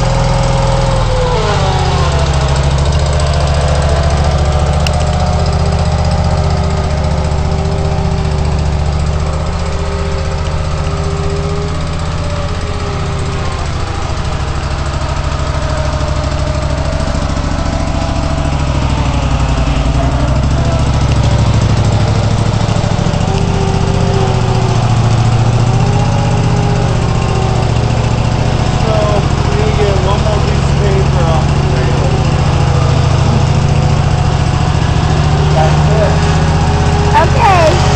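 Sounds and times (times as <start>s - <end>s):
hydraulic whining tones: 0.0s - 37.9s
loader engine running: 0.0s - 37.9s.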